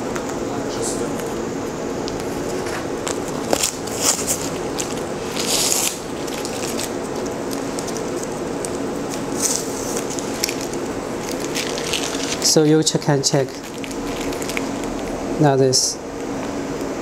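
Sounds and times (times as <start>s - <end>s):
low machine hum: 0.0s - 17.0s
plastic film crackling: 2.0s - 15.4s.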